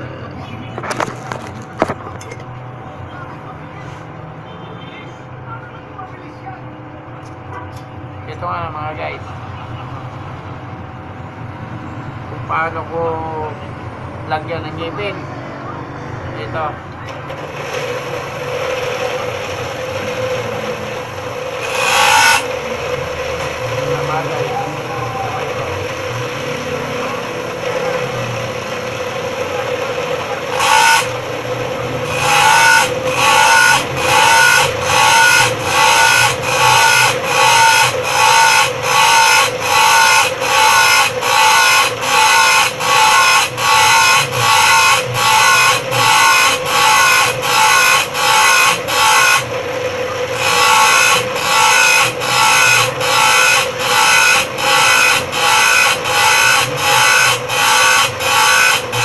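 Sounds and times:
saw teeth grinding on wheel: 0.8 - 2.4, 17.3 - 59.0
bench grinder motor humming: 17.2 - 59.0.

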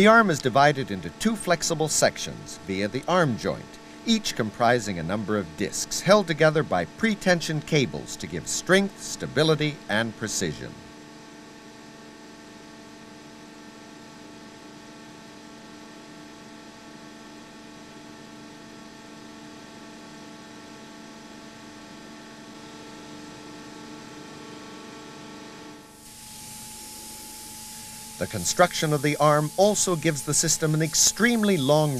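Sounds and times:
steady hum of held tones: 0.0 - 31.9
faint hiss: 26.0 - 31.9.

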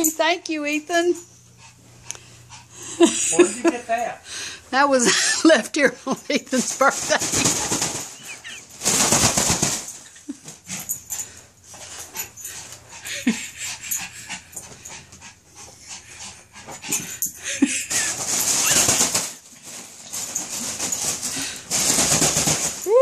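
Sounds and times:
balloon rubber rustling: 6.4 - 10.3, 17.7 - 23.0
balloon squeaks: 18.4 - 19.3.

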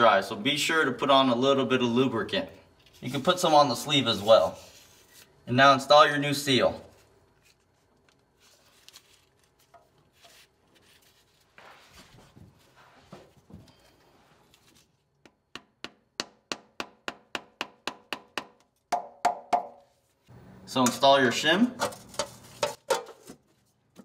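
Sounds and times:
faint rubbing and handling: 2.7 - 5.4, 6.8 - 15.1.

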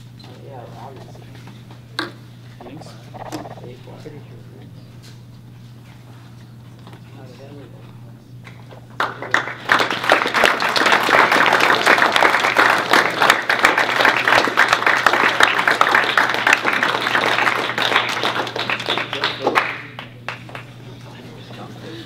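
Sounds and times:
audience applauding: 9.0 - 20.7.

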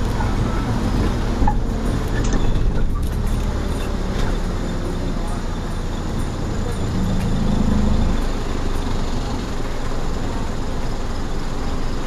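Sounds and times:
road rumble: 0.0 - 12.0
van engine drone: 0.0 - 12.0.

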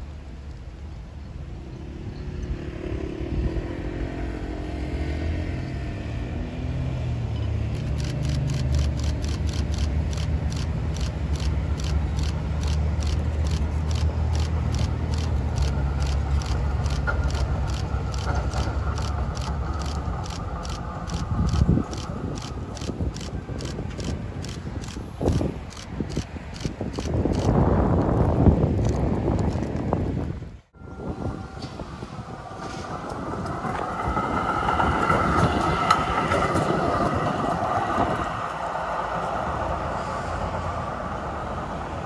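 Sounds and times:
street traffic: 0.0 - 42.0
tram approaching: 0.0 - 42.0
regular ticking: 7.7 - 29.7.

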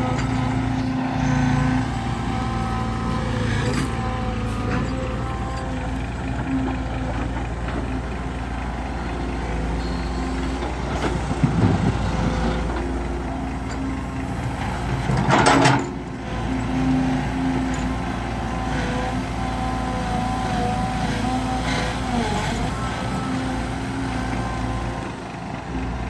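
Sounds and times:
excavator diesel engine running: 0.0 - 26.0.

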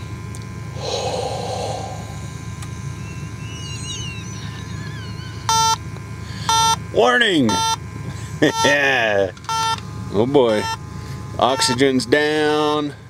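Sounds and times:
low engine idle hum: 0.0 - 13.0
breath blown into probe: 0.7 - 2.4
electronic alarm beep: 2.8 - 5.8, 7.5 - 7.8, 8.5 - 8.8, 9.5 - 9.8, 11.5 - 11.9.

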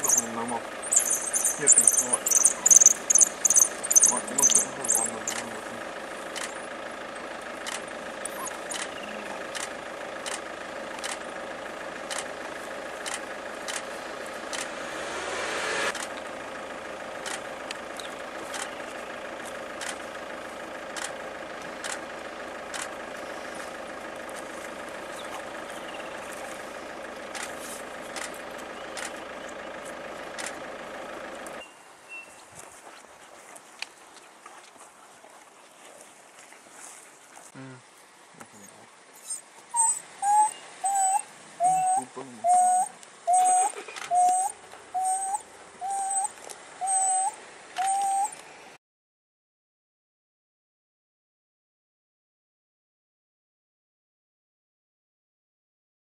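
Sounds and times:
sharp ticking: 0.0 - 6.6
vehicle engine idling: 0.0 - 48.8.

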